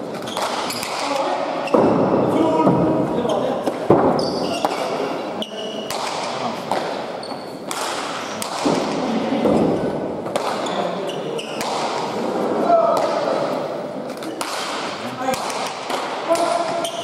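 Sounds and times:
ball smacking walls and paddles: 0.0 - 5.0, 5.8 - 17.0
shoe squeaks: 0.2 - 1.9, 3.2 - 3.6, 4.2 - 6.0, 7.2 - 7.7, 10.6 - 11.7, 16.8 - 17.0.

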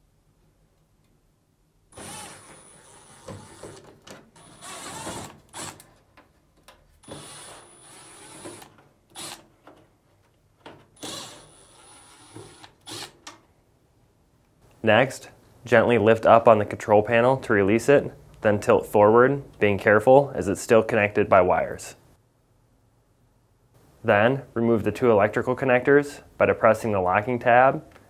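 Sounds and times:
cordless drill whining: 2.0 - 5.8, 7.0 - 9.5, 11.0 - 13.2.

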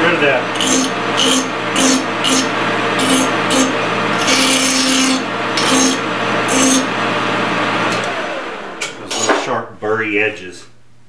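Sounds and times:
lathe running: 0.0 - 9.0
hand file rasping on metal: 0.6 - 6.9.

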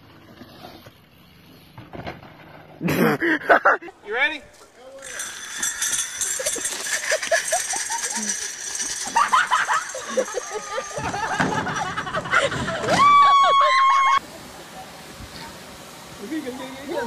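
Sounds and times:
people laughing and whooping: 6.4 - 14.4
long high yell: 12.9 - 14.2.

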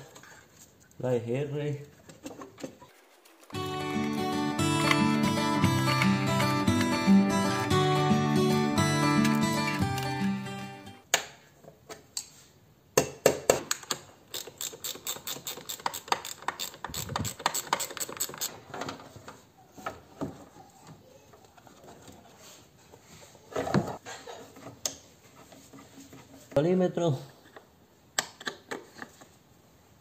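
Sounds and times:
ratchet clicking: 14.3 - 18.5.

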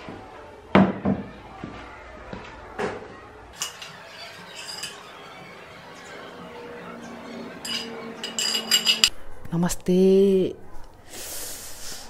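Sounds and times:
metal spoon clinking on pan: 3.6 - 5.2, 7.6 - 9.1.

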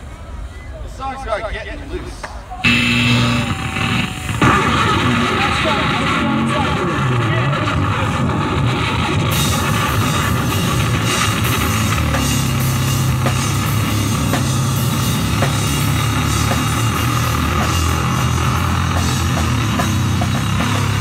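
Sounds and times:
amplified guitar low notes: 2.6 - 21.0
drum kit with crashing cymbals: 2.7 - 6.6, 8.9 - 21.0.

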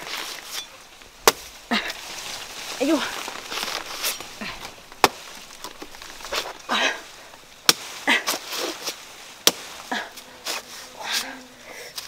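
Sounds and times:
rustling: 0.0 - 12.0
machete chopping plant trunk: 1.2 - 1.6, 3.0 - 11.3.

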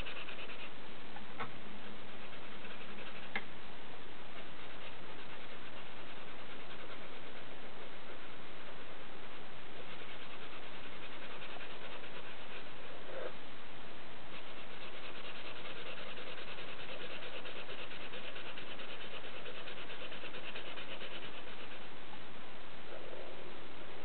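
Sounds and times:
pen scratching on paper: 0.0 - 0.7, 9.9 - 12.5, 14.4 - 21.8
steady hiss: 0.0 - 24.0.

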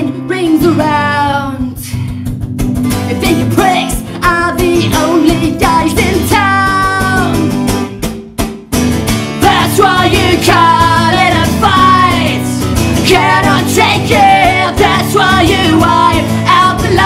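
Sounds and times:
woman singing: 0.0 - 2.1, 3.1 - 7.6, 9.4 - 17.0
acoustic guitar strumming: 2.0 - 17.0
man singing: 3.1 - 7.6, 9.4 - 17.0.

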